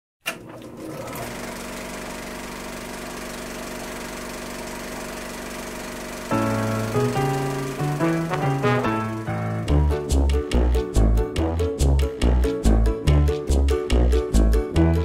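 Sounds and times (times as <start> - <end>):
swing band music: 6.3 - 15.0.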